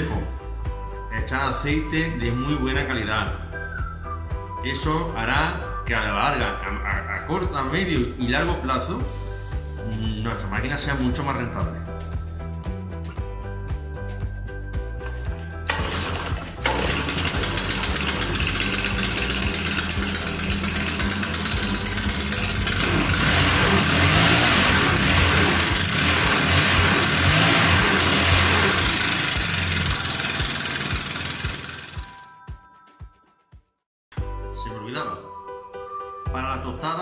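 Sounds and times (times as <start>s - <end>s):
leaf blower engine running: 15.1s - 32.3s.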